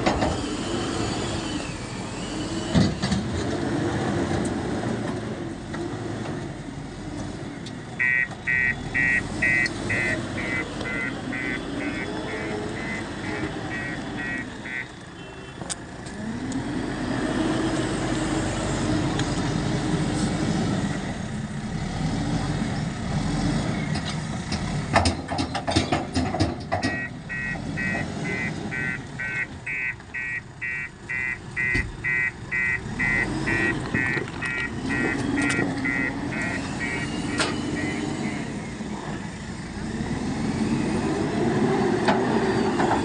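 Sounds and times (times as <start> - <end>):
diesel engine revving: 0.0 - 43.0
reversing alarm beeping: 8.0 - 15.5, 26.9 - 38.8.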